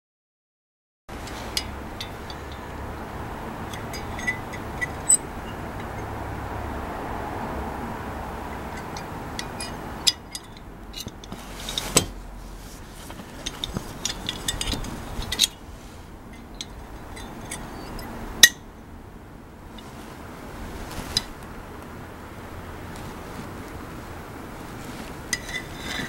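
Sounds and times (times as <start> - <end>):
small metal rattles: 1.2 - 2.8, 3.6 - 6.1, 13.0 - 15.6.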